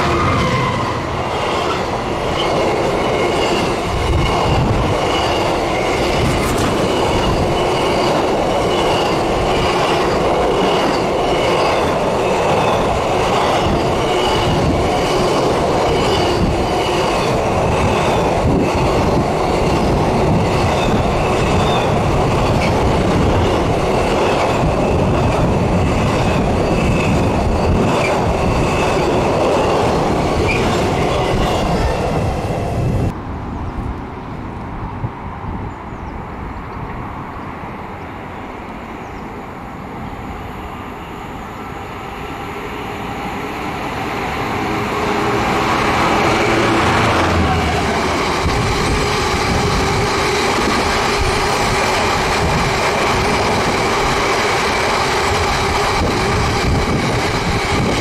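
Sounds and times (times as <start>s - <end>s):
diesel locomotive engine drone: 0.0s - 58.0s
train wheels rushing on rails: 0.0s - 58.0s
wheels clattering over rail joints: 1.5s - 31.8s.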